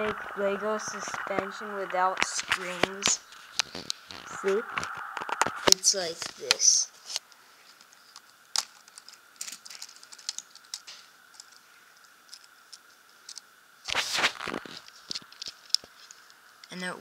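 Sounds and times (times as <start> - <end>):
plastic parts clicking and rattling: 7.7 - 13.5.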